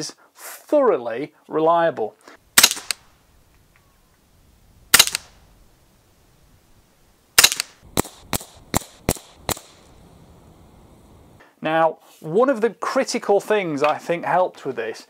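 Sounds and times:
suppressed rifle shots: 2.5s - 3.7s, 4.8s - 5.8s, 7.4s - 10.6s
gun action cycling: 2.6s - 3.8s, 4.9s - 5.5s, 7.4s - 9.9s.

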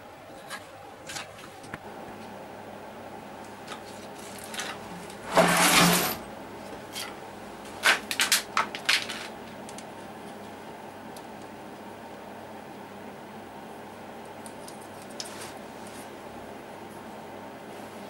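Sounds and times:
wires rustling scrape: 3.7s - 6.2s, 14.8s - 16.2s.

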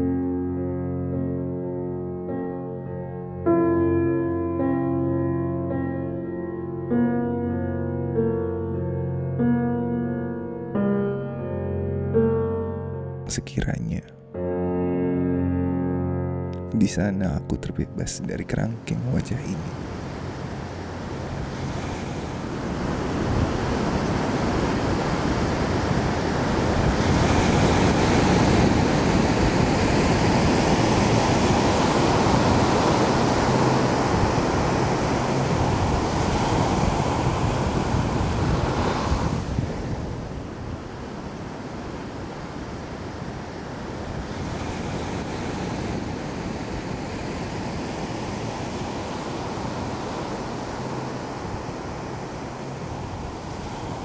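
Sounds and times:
rushing wind-like noise: 18.4s - 54.0s.

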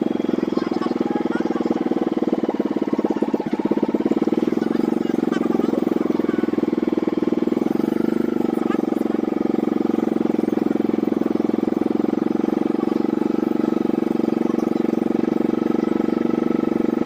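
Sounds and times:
small boat engine running: 0.0s - 17.0s.

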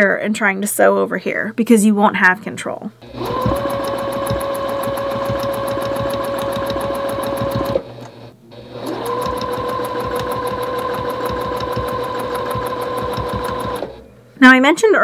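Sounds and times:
sewing machine stitch ticks: 3.0s - 8.2s, 8.8s - 14.0s
sewing machine motor whining: 3.0s - 14.0s.

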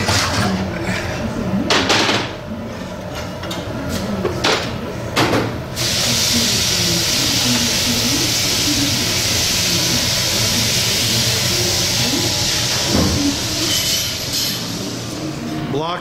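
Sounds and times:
loud steady hiss: 5.8s - 15.3s.

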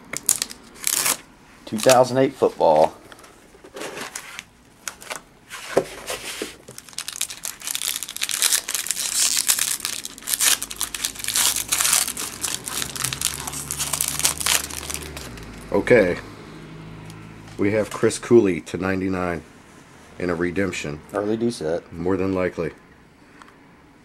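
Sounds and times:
foil wrapper crinkling and tearing: 0.0s - 2.1s, 6.6s - 15.7s.

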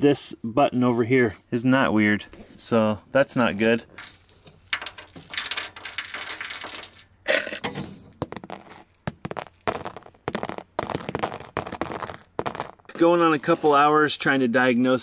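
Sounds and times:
plastic fuses rattling on metal: 3.3s - 13.2s.

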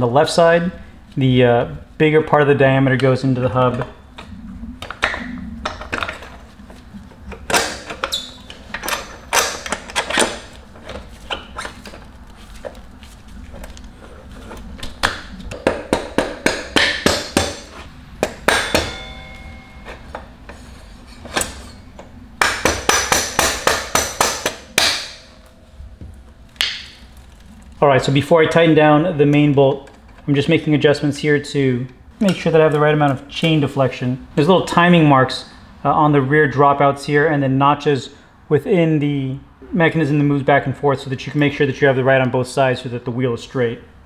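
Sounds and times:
mallet tapping metal: 15.5s - 20.2s.

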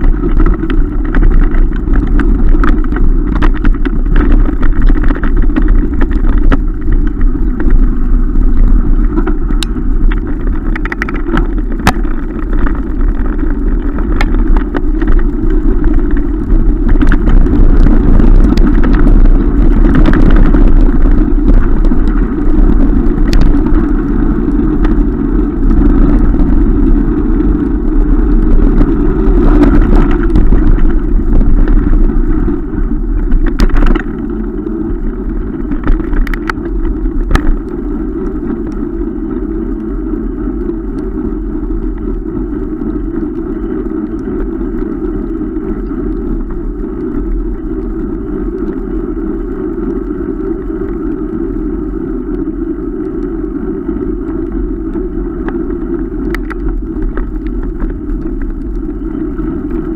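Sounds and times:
bike clicks and knocks: 0.0s - 41.3s, 54.9s - 59.9s
wind rushing over microphone: 0.0s - 59.9s.

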